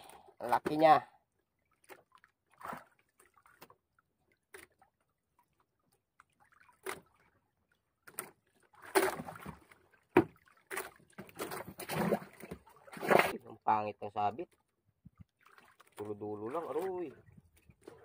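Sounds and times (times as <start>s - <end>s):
water sloshing: 0.4s - 13.5s, 14.4s - 18.0s
knocks on wooden hull: 9.0s - 10.4s.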